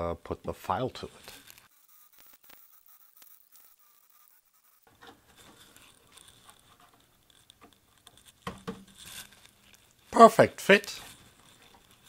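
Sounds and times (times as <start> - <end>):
plastic panel scratching: 1.2 - 10.0.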